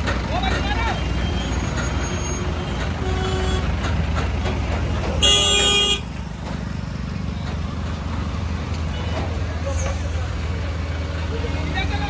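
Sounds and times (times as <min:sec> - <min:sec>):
heavy vehicle engines rumbling: 0:00.0 - 0:12.0
vehicle horn honking: 0:05.2 - 0:06.1.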